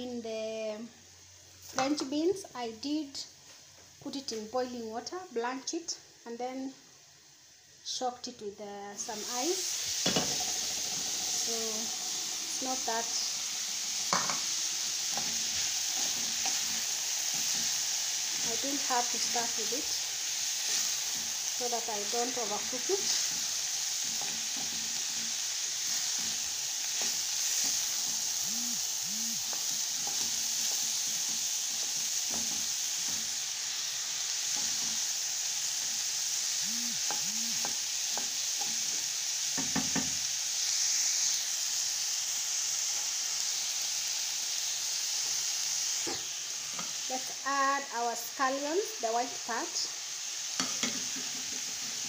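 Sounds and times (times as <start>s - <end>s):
vegetables sizzling in a pan: 0.0s - 52.0s
wooden spatula scraping a pan: 14.0s - 28.4s, 29.5s - 33.8s.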